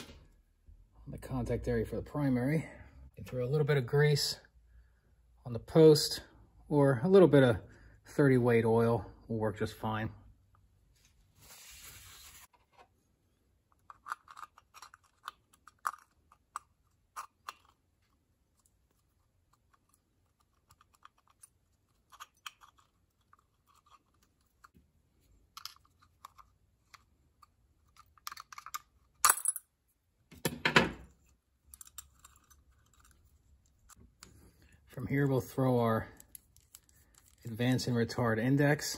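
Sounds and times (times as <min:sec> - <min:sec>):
small metal parts clicking: 0:31.6 - 0:34.0.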